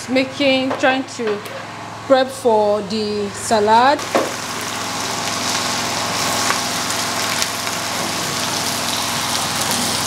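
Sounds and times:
rice sizzling in oil: 0:04.0 - 0:10.0.

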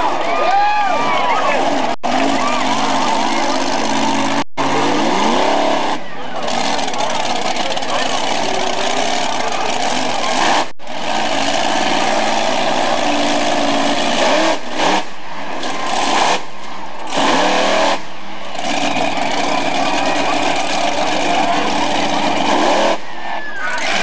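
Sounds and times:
truck engine revving hard: 0:00.0 - 0:24.0.

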